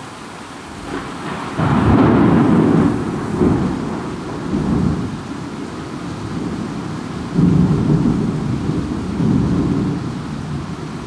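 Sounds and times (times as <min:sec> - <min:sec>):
heavy rain: 0:00.0 - 0:11.0
thunder rolling: 0:00.8 - 0:05.2, 0:06.2 - 0:10.6.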